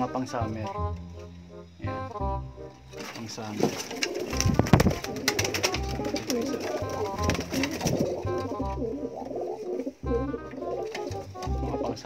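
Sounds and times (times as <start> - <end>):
pigeons cooing: 3.0 - 12.0.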